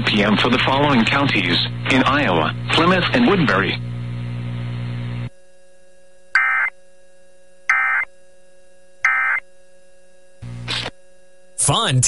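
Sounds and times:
radio broadcast hiss and hum: 0.0 - 5.3, 10.4 - 11.0, 11.6 - 12.0.

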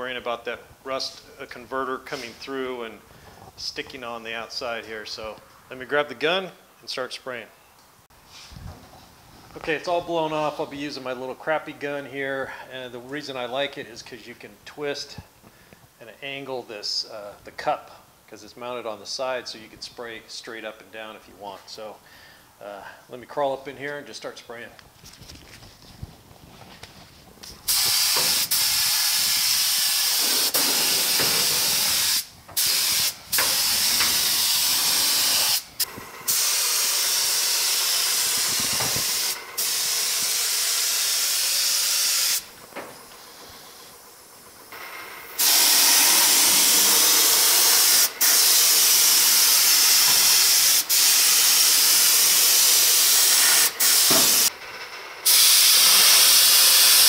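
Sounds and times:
spray gun hissing: 27.7 - 42.5, 45.4 - 54.5, 55.2 - 57.0.

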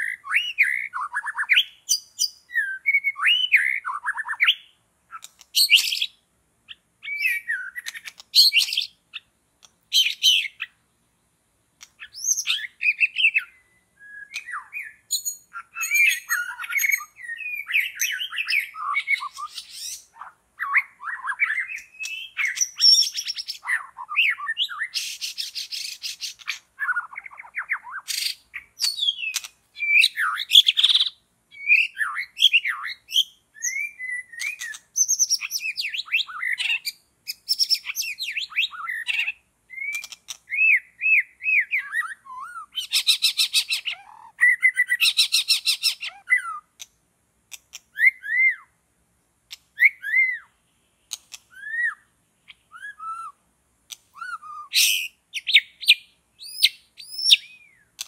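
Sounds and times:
bird whistled song: 0.0 - 10.8, 11.8 - 46.9, 47.7 - 48.8, 49.5 - 58.0
harsh rattling bird call: 0.0 - 10.8, 11.8 - 46.8, 54.1 - 58.0.

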